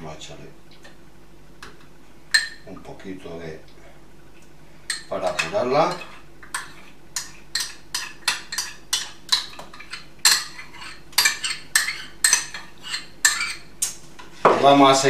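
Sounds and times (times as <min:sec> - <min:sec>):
spoon clinking in cup: 0:02.4 - 0:02.6.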